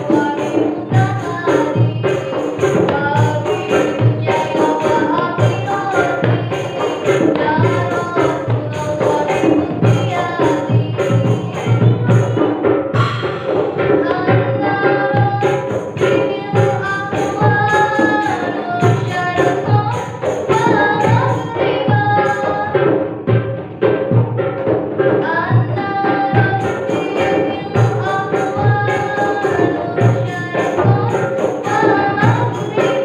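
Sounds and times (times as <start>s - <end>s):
large drum beat: 0.0s - 33.0s
small hand drums: 0.0s - 33.0s
girl singing solo: 13.0s - 22.9s.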